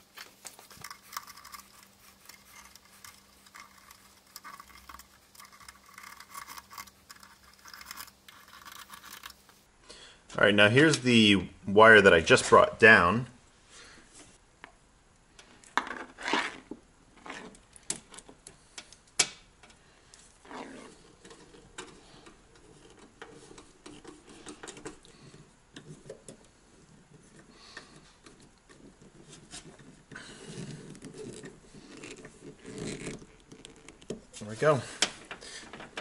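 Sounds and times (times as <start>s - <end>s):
wire rustling and scraping: 0.0s - 9.7s, 16.0s - 18.3s, 20.0s - 36.0s.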